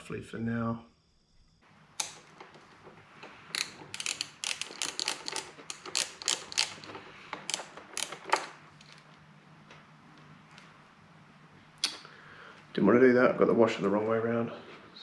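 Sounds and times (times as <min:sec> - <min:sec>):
metal clicks and clinks: 0:03.6 - 0:09.0.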